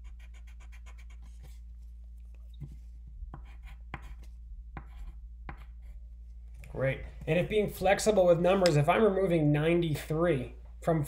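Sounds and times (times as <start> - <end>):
pencil scratching on paper: 0.0 - 1.8, 3.2 - 6.0.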